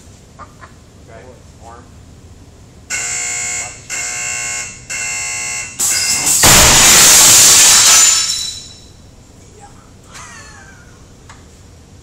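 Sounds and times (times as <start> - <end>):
compressed air cannon firing: 6.2 - 8.4.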